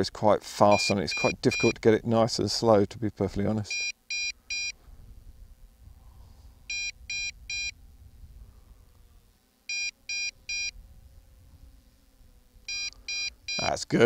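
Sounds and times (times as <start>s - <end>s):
short high beeps: 0.7s - 1.8s, 3.7s - 4.8s, 6.7s - 7.7s, 12.7s - 13.7s
low wind rush: 4.4s - 9.3s, 10.4s - 12.7s.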